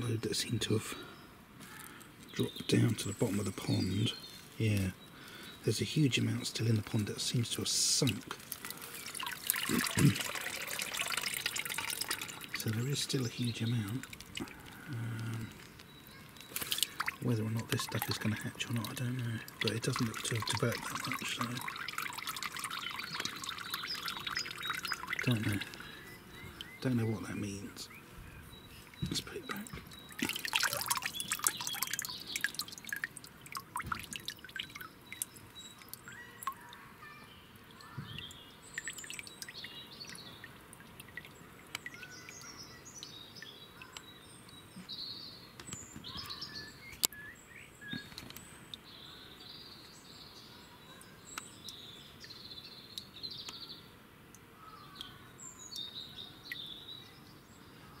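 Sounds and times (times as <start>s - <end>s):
birds chirping and singing: 0.0s - 33.0s, 33.7s - 53.9s
water splashing and dripping: 6.8s - 27.6s, 28.8s - 36.8s, 37.6s - 44.0s.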